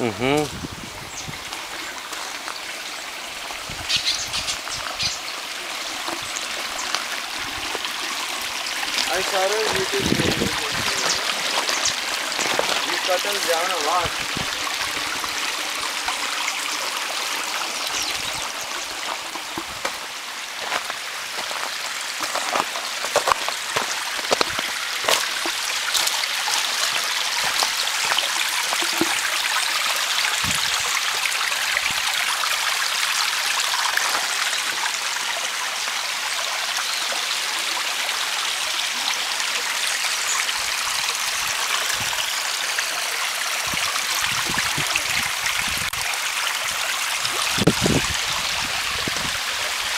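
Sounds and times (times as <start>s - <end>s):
stream trickling over stones: 0.0s - 49.9s.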